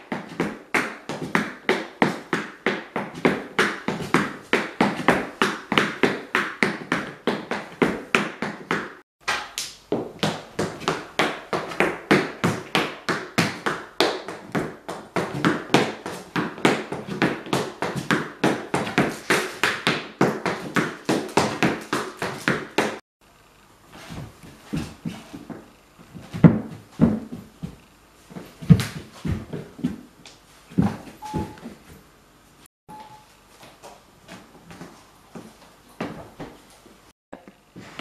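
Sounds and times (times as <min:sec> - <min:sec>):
hard shoes beating wooden floor: 0:00.0 - 0:09.0, 0:09.8 - 0:23.0, 0:24.1 - 0:31.8.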